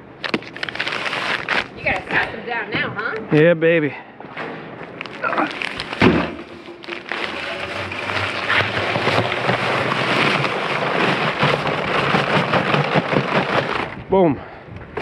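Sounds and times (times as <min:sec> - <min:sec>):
dry concrete mix pouring: 0:05.0 - 0:14.1
cement mixer humming: 0:05.0 - 0:14.2.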